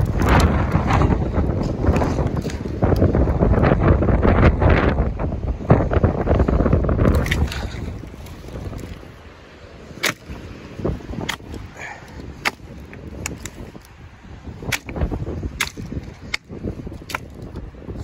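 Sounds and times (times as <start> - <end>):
dry branches snapping: 0.0 - 3.7, 7.0 - 9.2, 9.8 - 17.7
twigs rustling: 6.4 - 17.7.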